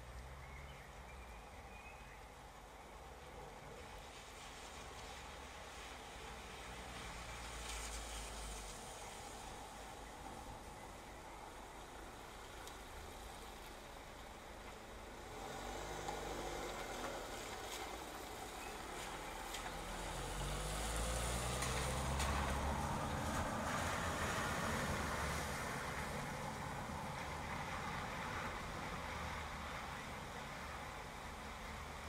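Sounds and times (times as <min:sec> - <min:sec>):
car engine rumble: 0:00.0 - 0:32.0
steady rainfall: 0:02.2 - 0:32.0
tyres hissing through water: 0:03.8 - 0:28.3.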